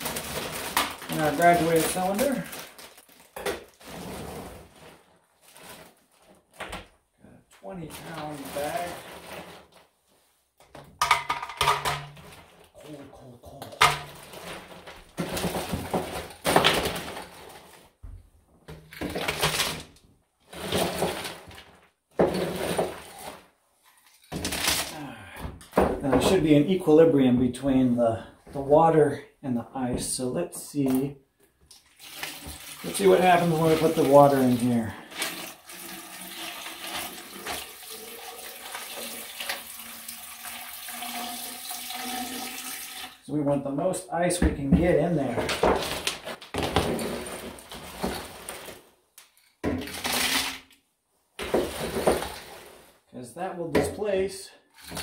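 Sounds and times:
water pouring onto ice: 31.8s - 43.2s
ice cubes clattering: 49.8s - 50.6s.

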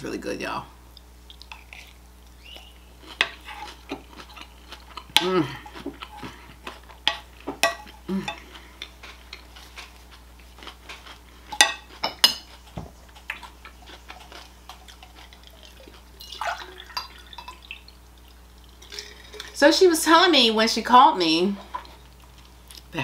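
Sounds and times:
crunchy chewing: 1.0s - 16.2s.

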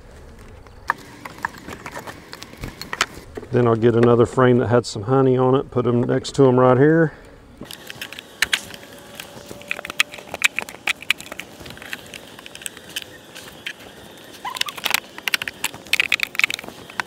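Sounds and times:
hive tool clicking on wooden box: 7.7s - 17.0s.

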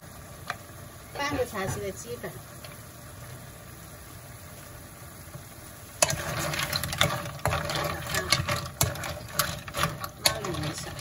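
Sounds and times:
clams sizzling in wok: 0.0s - 11.0s
shells clattering against pan: 6.0s - 11.0s.

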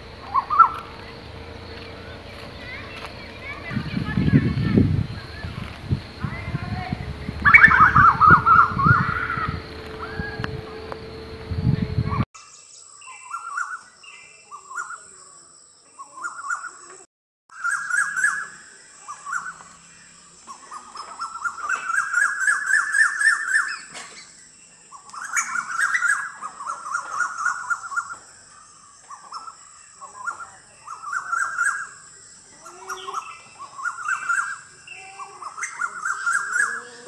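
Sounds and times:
steady high whine: 0.0s - 12.3s
birds calling: 0.0s - 37.0s.

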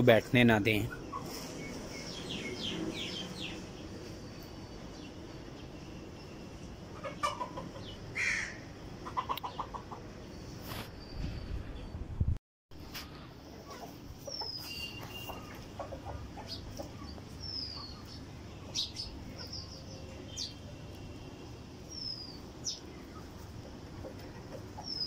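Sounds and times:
chickens clucking softly: 6.9s - 8.1s, 9.0s - 10.3s, 13.5s - 18.2s, 23.0s - 25.0s
high bird chirps: 14.2s - 15.8s.

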